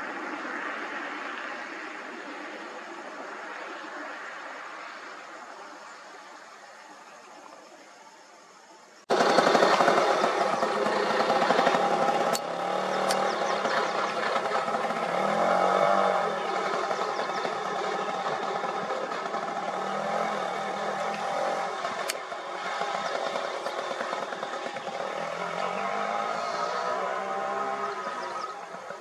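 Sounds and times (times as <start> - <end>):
small engine idling: 9.1 - 29.0
sharp clicks: 9.2 - 14.4.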